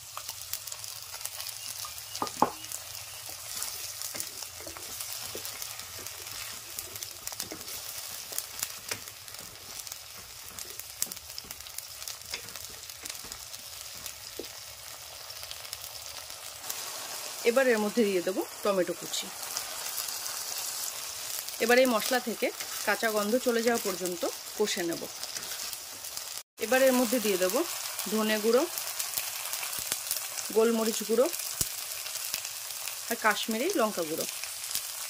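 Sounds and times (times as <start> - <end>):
paste sizzling in hot oil: 0.0 - 35.0
wooden spatula scraping: 3.4 - 11.7.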